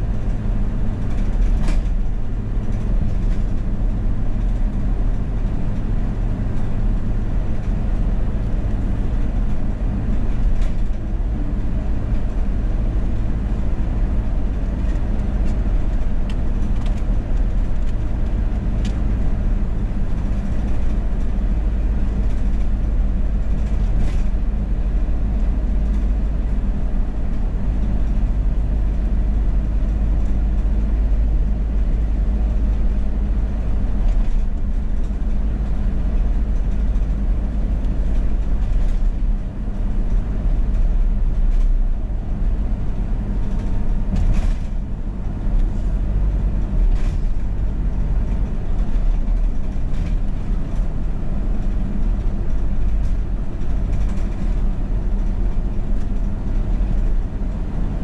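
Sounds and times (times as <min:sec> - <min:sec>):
car driving on highway: 0:00.0 - 0:58.0.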